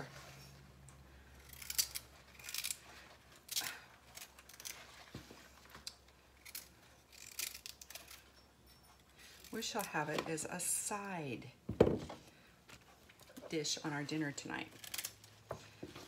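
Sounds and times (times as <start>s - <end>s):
vegetable peeler scraping skin: 1.4s - 2.8s, 6.4s - 8.2s.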